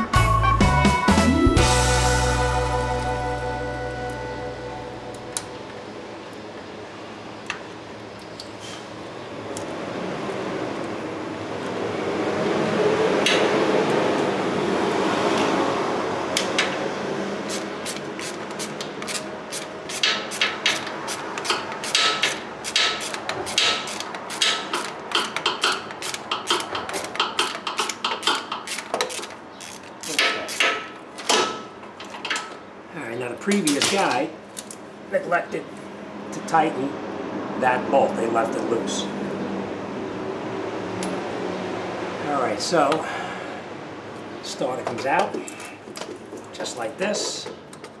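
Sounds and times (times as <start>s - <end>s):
broad rushing noise: 8.8s - 24.6s
ratchet wrench clicking: 17.5s - 30.8s.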